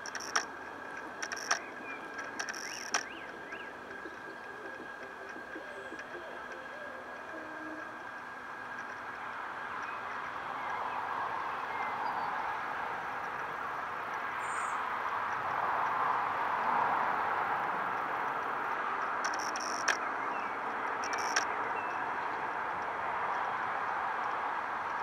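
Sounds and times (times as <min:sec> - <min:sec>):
sharp clicks: 0:00.0 - 0:06.6, 0:19.0 - 0:20.1, 0:21.0 - 0:21.6
distant traffic hum: 0:00.0 - 0:25.0.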